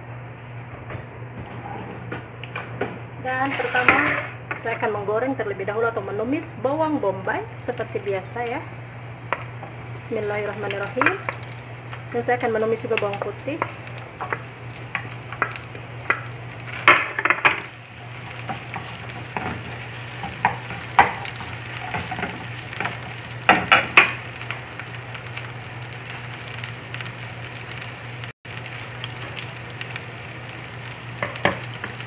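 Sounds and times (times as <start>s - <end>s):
steady low hum: 0.0s - 32.0s
onion and garlic sizzling in oil: 3.2s - 32.0s
wooden spatula scraping a pan: 3.4s - 4.2s.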